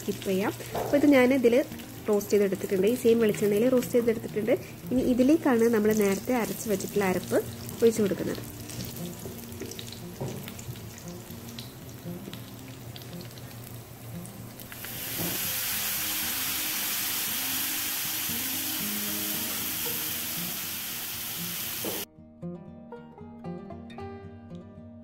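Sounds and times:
loud steady sizzle: 0:00.0 - 0:22.1
nuts sizzling in hot oil: 0:00.0 - 0:22.1
oil popping: 0:14.6 - 0:20.0
paste poured into oil: 0:14.7 - 0:21.8.

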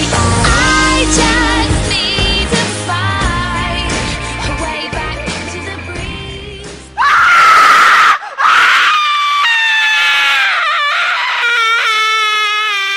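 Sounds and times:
pop song: 0:00.0 - 0:07.0
loud scream: 0:07.0 - 0:12.9.

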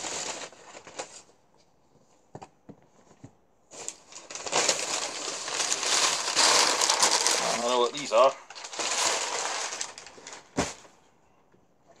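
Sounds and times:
packing paper rustling and crinkling: 0:00.0 - 0:01.4, 0:03.7 - 0:10.9.

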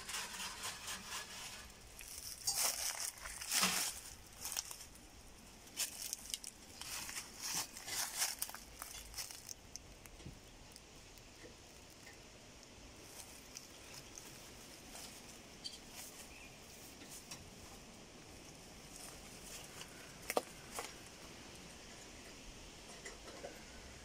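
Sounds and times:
footsteps on dry leaves: 0:00.0 - 0:09.6, 0:13.0 - 0:18.0.

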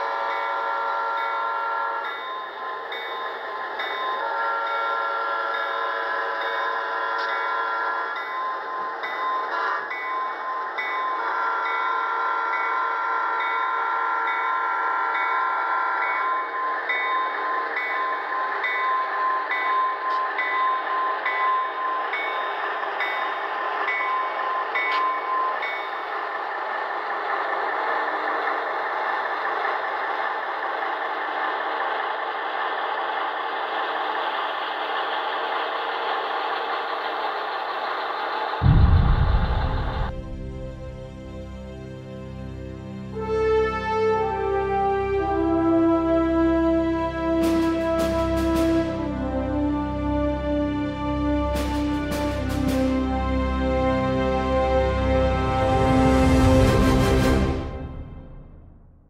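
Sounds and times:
locomotive horn: 0:00.0 - 0:02.2, 0:04.1 - 0:08.2, 0:11.2 - 0:15.1, 0:42.9 - 0:58.8
locomotive bell dinging: 0:00.0 - 0:26.5
diesel engine rumble: 0:26.2 - 0:42.9.

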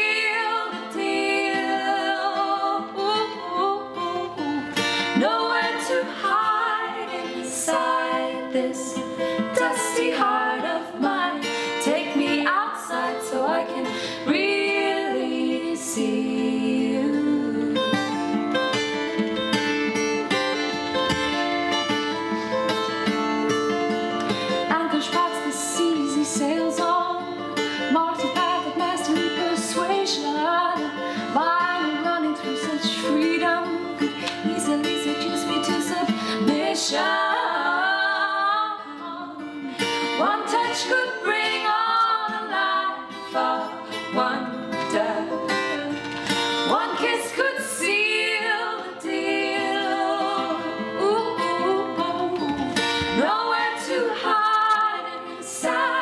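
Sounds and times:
woman singing: 0:00.0 - 0:18.4, 0:24.6 - 0:56.0
acoustic guitar: 0:00.0 - 0:56.0.

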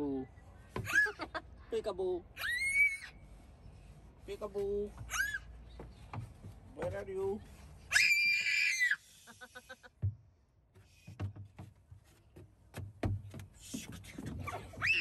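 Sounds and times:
child giggling: 0:00.9 - 0:01.5
child squealing: 0:02.4 - 0:03.2, 0:05.1 - 0:05.5, 0:07.9 - 0:09.1, 0:14.5 - 0:15.0
knocks and thumps on climbing frame: 0:05.8 - 0:07.2, 0:09.9 - 0:14.8.

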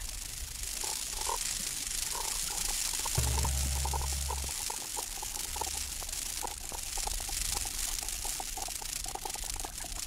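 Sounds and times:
hiss of water and wind: 0:00.0 - 0:10.0
synthesiser blips: 0:03.2 - 0:04.6.

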